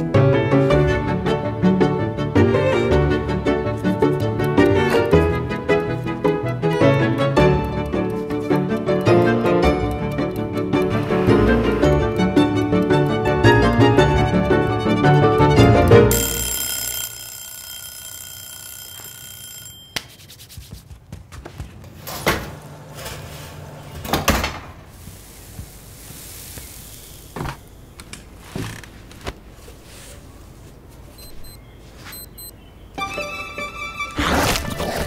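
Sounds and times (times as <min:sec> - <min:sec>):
steady ringing tone: 0:16.1 - 0:20.4.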